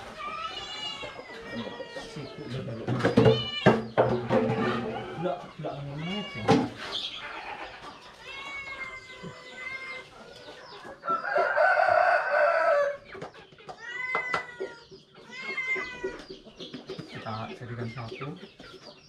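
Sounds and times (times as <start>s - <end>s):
chicken calls: 0.0s - 19.0s
rooster crowing: 11.0s - 13.0s.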